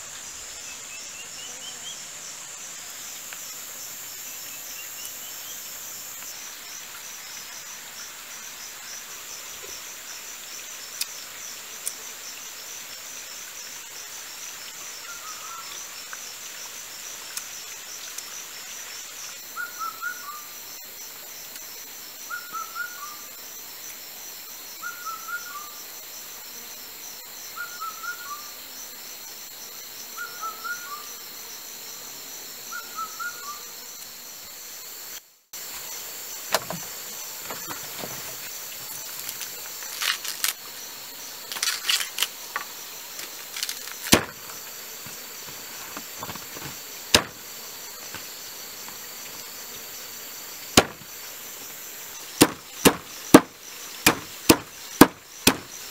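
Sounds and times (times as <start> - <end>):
insect trill: 0.0 - 55.9
handling rustles and clicks: 37.5 - 40.6, 41.5 - 44.5
knife chopping on wooden block: 44.0 - 44.4, 46.2 - 47.4, 50.8 - 51.1, 52.4 - 55.7.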